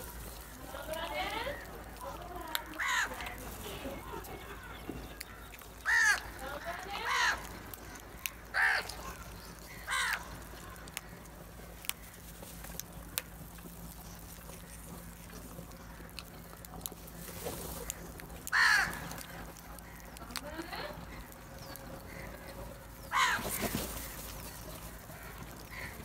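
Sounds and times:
beaks pecking on concrete: 0.0s - 26.0s
crows cawing: 1.5s - 3.4s, 4.4s - 12.3s, 17.8s - 20.3s, 21.0s - 26.0s.

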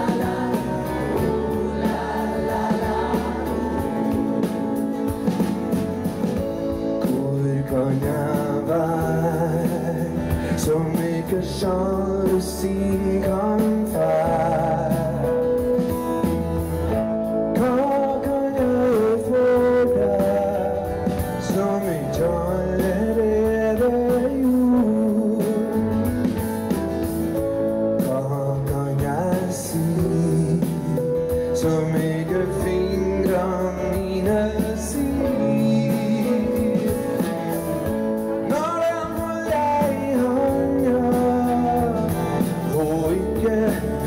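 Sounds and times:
choir singing: 0.0s - 6.0s
band playing: 0.0s - 44.0s.

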